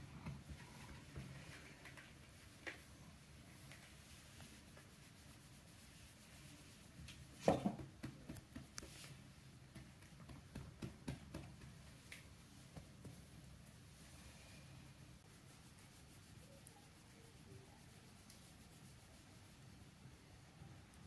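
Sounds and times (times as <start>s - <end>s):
hand rubbing cat fur: 3.5s - 7.4s, 8.6s - 9.4s, 15.2s - 19.8s
small clicks and brushes: 15.6s - 19.4s.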